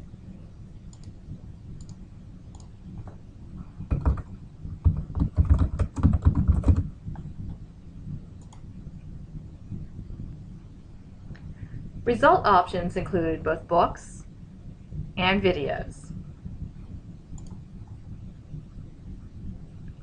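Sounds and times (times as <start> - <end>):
low steady hum: 0.0 - 20.0
keyboard typing: 3.9 - 7.3.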